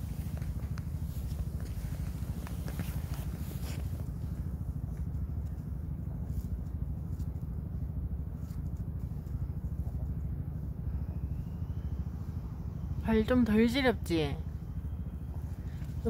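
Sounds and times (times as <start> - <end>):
footsteps on snow: 0.0 - 6.6
low outdoor rumble: 0.0 - 16.0.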